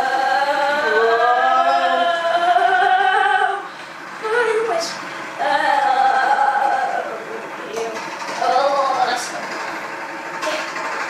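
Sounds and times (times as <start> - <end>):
high voice singing held notes: 0.0 - 7.5.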